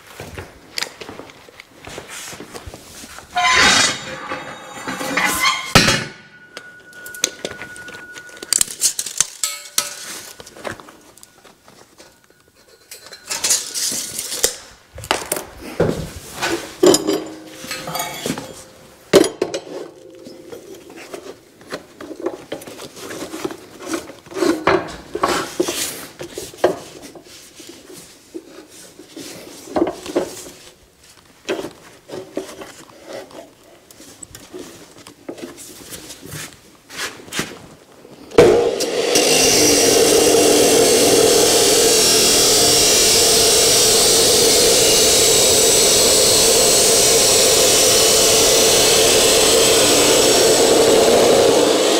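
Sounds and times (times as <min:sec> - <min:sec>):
steel tubing clanking: 0:03.3 - 0:14.5, 0:16.8 - 0:21.3
chop saw motor starting: 0:38.3 - 0:51.9.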